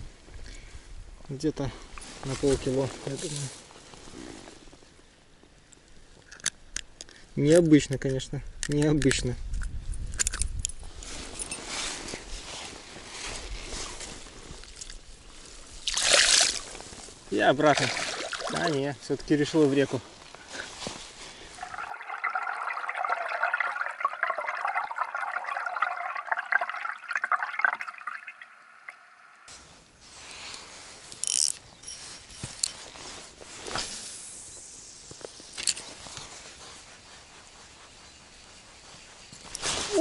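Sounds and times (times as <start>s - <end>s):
water gurgling underwater: 21.6s - 29.1s.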